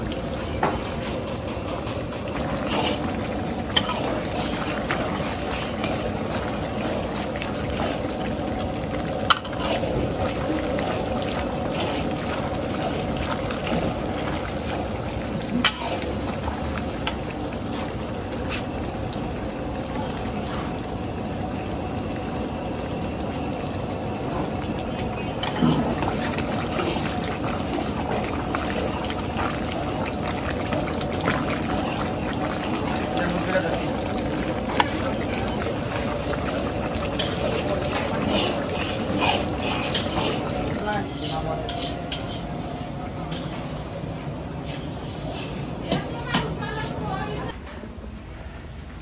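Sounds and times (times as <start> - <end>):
curry simmering: 0.0 - 47.6
metal spatula stirring: 2.5 - 6.1, 9.3 - 9.9, 37.2 - 42.6.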